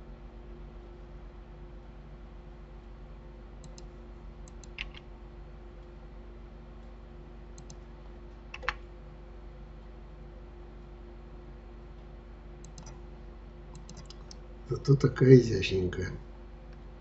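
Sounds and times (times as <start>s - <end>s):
steady low hum: 0.0s - 17.0s
mouse and keyboard clicks: 3.6s - 3.9s, 4.5s - 5.1s, 7.6s - 7.8s, 8.5s - 8.8s, 12.6s - 13.0s, 13.7s - 14.4s.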